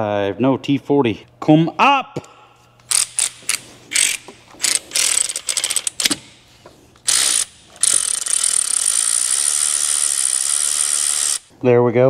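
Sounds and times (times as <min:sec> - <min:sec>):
hand ratchet clicking: 0:02.9 - 0:06.3, 0:07.0 - 0:11.5.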